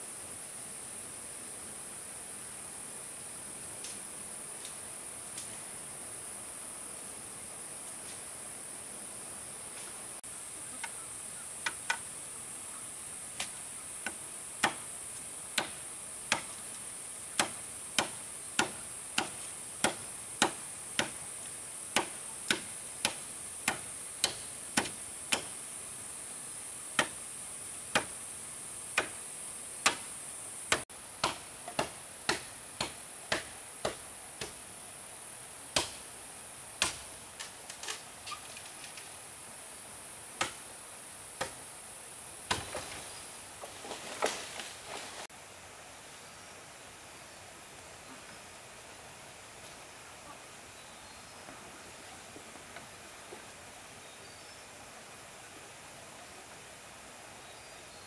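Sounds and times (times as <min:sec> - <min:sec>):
hand tool striking wood: 0:15.6 - 0:16.6, 0:17.4 - 0:21.2, 0:22.0 - 0:25.5, 0:27.9 - 0:28.1, 0:29.8 - 0:30.0, 0:30.7 - 0:34.6, 0:35.8 - 0:36.0, 0:42.5 - 0:42.9.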